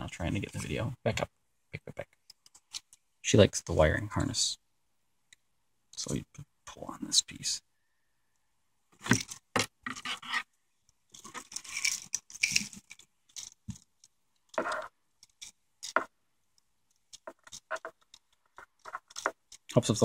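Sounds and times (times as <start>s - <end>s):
scrapes and wire rustling: 9.0s - 10.5s, 11.1s - 16.1s, 17.0s - 19.7s.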